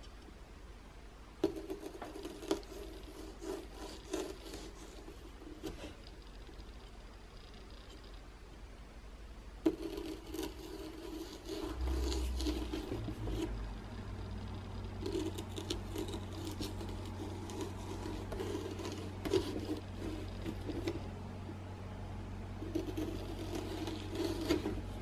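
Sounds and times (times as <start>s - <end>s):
knife sawing through pumpkin: 22.7s - 24.9s.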